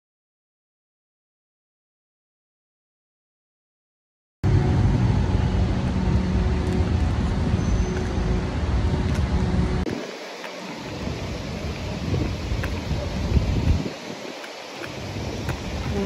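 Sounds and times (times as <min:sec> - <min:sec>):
street traffic: 0:04.4 - 0:16.0
vehicle engine running: 0:04.4 - 0:16.0
outdoor hiss: 0:07.9 - 0:16.0.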